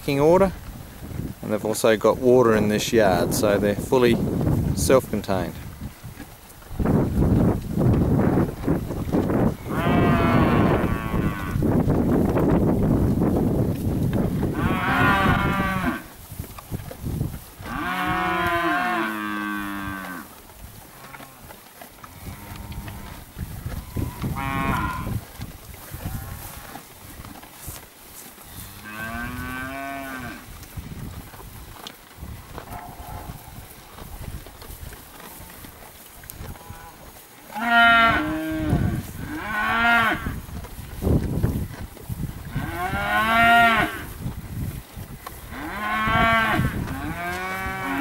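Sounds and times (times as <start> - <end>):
calves munching hay: 0.0 - 48.0
calves mooing: 9.5 - 11.6, 14.4 - 16.1, 17.7 - 20.3, 20.9 - 21.5, 22.1 - 25.2, 28.5 - 30.5, 32.6 - 33.6, 36.5 - 40.4, 42.5 - 44.1, 45.4 - 48.0.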